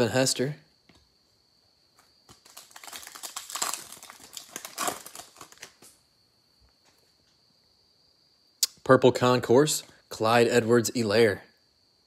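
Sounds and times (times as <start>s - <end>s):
foil wrapper tearing and crinkling: 2.3s - 6.0s.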